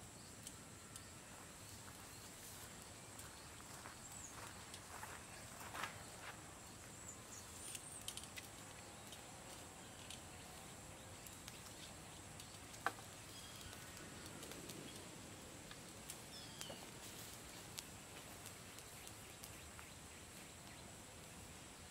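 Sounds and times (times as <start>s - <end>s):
bird chirps: 6.8s - 15.1s, 16.2s - 17.0s.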